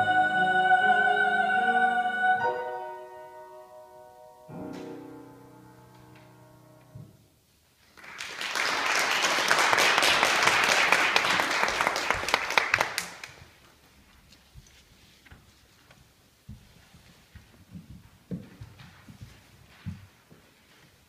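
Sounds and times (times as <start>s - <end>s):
piano chord: 0.0s - 7.2s
audience applauding: 7.8s - 13.4s.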